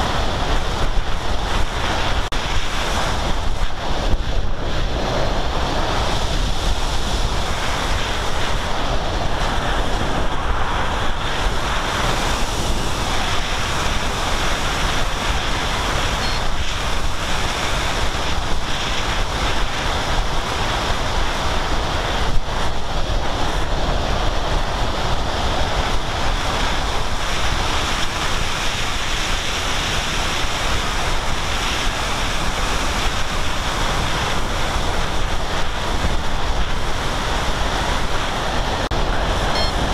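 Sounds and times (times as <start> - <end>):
wind rushing over microphone: 0.0 - 39.9
faint high whine: 16.0 - 16.7, 39.4 - 39.9.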